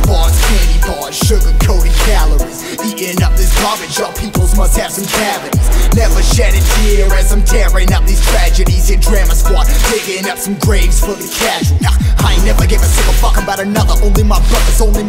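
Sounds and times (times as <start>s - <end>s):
hip hop music: 0.0s - 15.0s
deep sliding bass hits: 4.2s - 9.8s, 11.8s - 15.0s.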